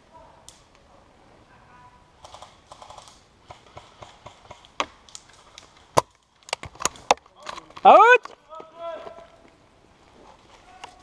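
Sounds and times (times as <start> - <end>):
airsoft guns firing: 2.2 - 5.0.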